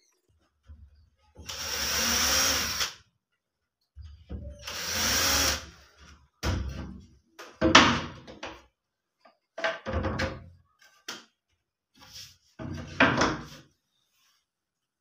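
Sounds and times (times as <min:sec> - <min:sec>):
cordless drill bursts: 0:01.5 - 0:02.9, 0:04.6 - 0:05.6.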